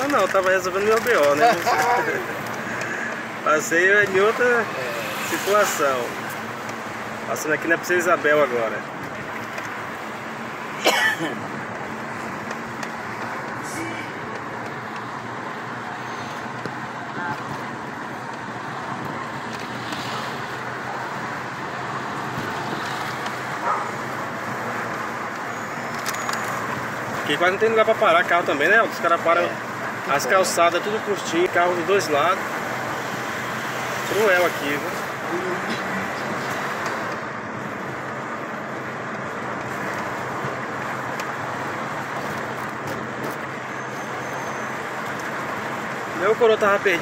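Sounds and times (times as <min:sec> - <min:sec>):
car engine and road noise: 0:00.0 - 0:47.0.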